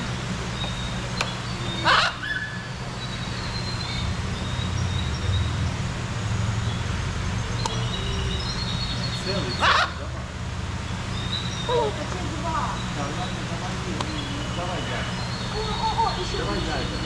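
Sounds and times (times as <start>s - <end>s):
steady low hum: 0.0s - 17.0s
parrot squawk: 1.7s - 2.7s, 9.5s - 10.1s.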